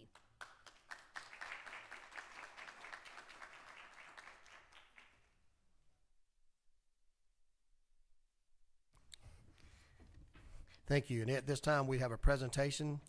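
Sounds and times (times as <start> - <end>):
people clapping: 0.0 - 5.5.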